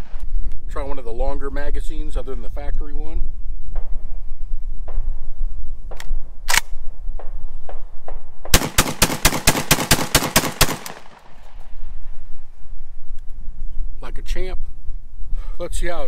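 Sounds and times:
gun clicks: 5.9 - 6.8, 8.6 - 11.7
rapid shotgun fire: 8.5 - 11.6.

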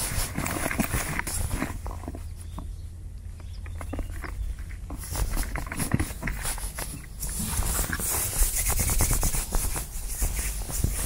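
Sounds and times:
hands rubbing gritty groundbait: 3.8 - 11.0.

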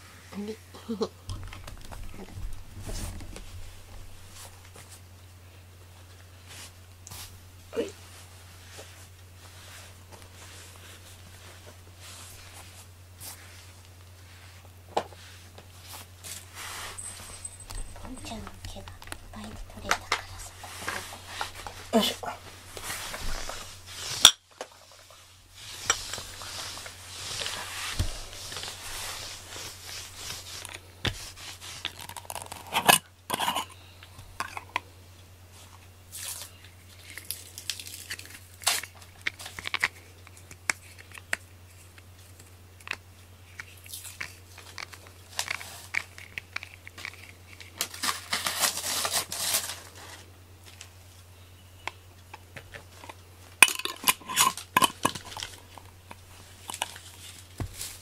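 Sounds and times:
rubber brush scraping cat fur: 8.0 - 24.2, 24.8 - 33.6.

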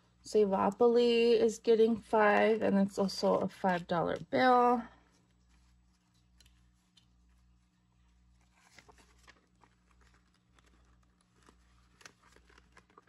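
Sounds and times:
low steady hum: 0.0 - 13.0
paper banknotes rustling: 8.2 - 13.0.

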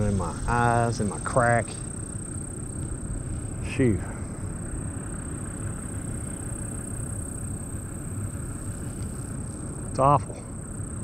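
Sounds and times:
low rumble: 0.0 - 6.8
crickets droning: 0.0 - 11.0.

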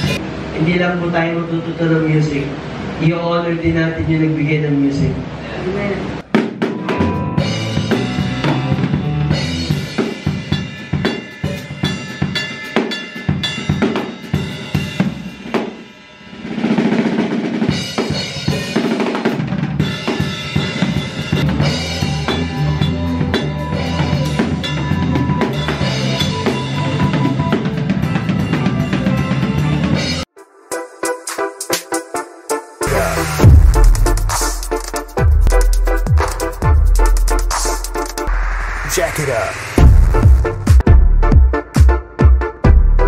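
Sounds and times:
acoustic drum kit: 0.0 - 0.2, 6.2 - 43.0
bass guitar: 0.0 - 0.2, 6.8 - 10.0, 21.3 - 30.2, 32.8 - 39.2, 39.8 - 41.8, 42.6 - 43.0.

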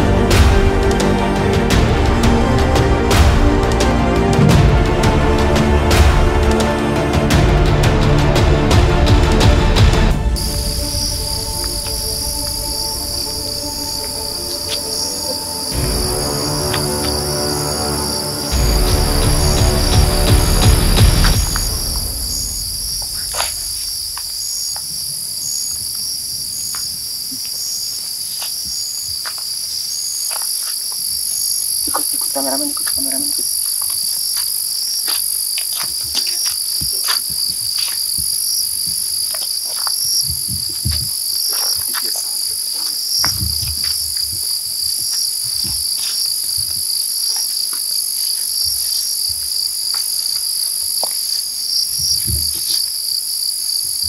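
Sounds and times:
low rumbles: 0.0 - 17.4, 18.1 - 24.6
crickets trilling: 10.3 - 54.0
insect chirping in short pulses: 10.4 - 18.6, 21.3 - 54.0.

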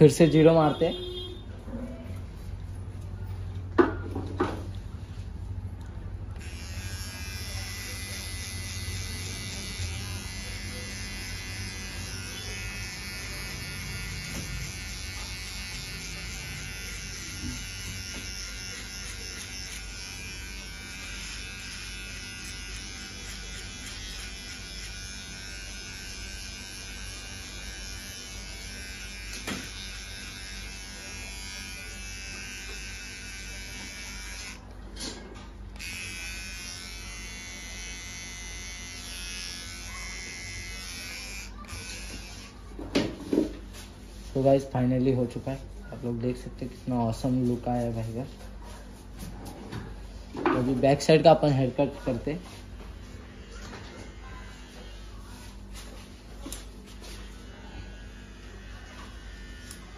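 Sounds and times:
electric hair trimmer buzzing: 6.3 - 34.7, 35.7 - 42.6, 56.4 - 59.9.

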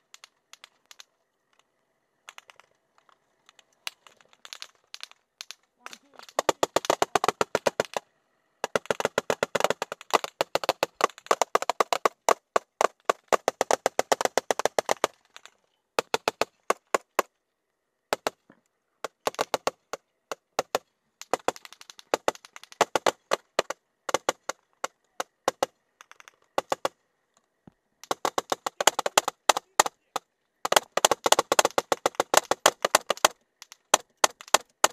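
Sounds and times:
rapid rifle fire: 8.6 - 15.2, 30.7 - 34.9.

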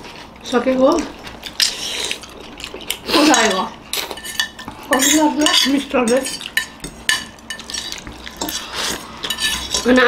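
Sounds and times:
noodles being slurped: 1.4 - 4.2, 7.6 - 10.0
forks scraping ceramic plates: 3.2 - 10.0.

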